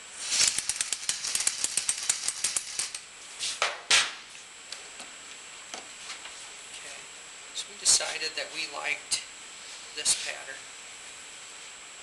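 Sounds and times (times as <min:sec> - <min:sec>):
hand ratchet clicking: 0:00.3 - 0:03.0.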